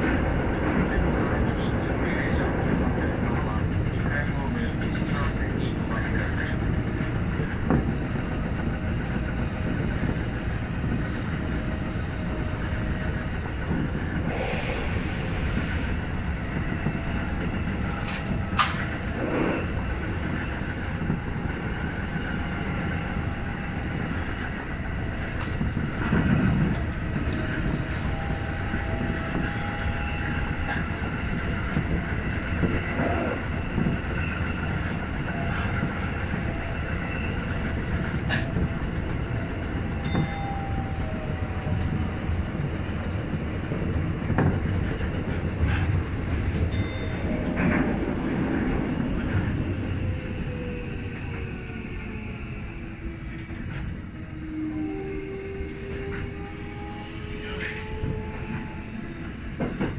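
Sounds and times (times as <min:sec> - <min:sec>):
train wheels rumbling on rail: 0:00.0 - 0:59.9
sharp rail clicks: 0:17.7 - 0:19.8
faint wheel squeal: 0:34.2 - 0:35.8.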